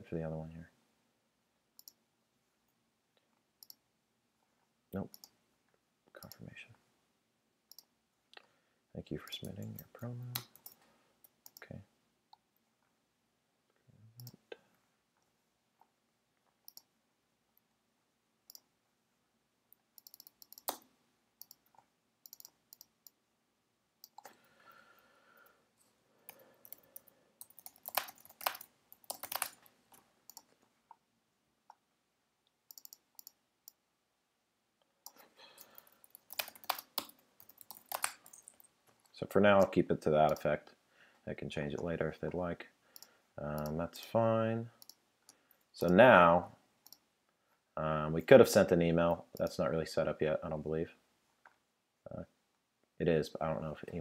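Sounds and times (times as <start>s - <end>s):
computer mouse clicks: 1.8s - 2.0s, 3.6s - 3.8s, 7.7s - 8.5s, 9.4s - 11.7s, 14.2s - 14.4s, 16.7s - 16.9s, 19.7s - 23.2s, 24.0s - 24.4s, 26.3s - 30.6s, 32.7s - 33.8s, 35.0s - 38.6s, 43.0s - 43.8s, 44.8s - 46.0s, 46.8s - 47.0s
keyboard typing: 9.4s - 10.8s, 20.0s - 23.2s, 26.3s - 30.6s, 32.7s - 33.8s, 35.0s - 38.7s.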